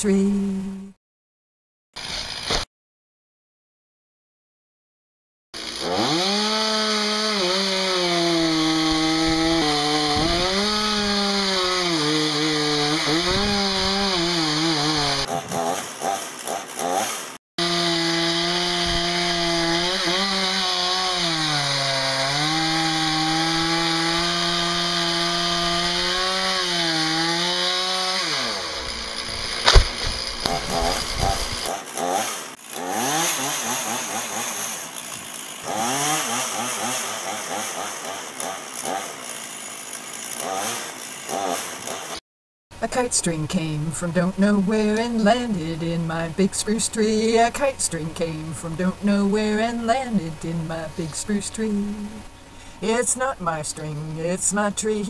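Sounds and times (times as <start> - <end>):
chainsaw cutting wood: 2.0 - 2.7, 5.6 - 42.2, 44.5 - 53.0
sharp knock: 29.6 - 30.2.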